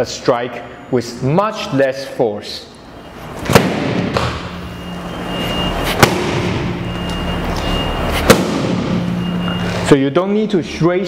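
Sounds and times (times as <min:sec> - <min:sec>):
hand slapping striking pad: 0:03.5 - 0:04.4, 0:05.9 - 0:06.6, 0:08.2 - 0:08.9.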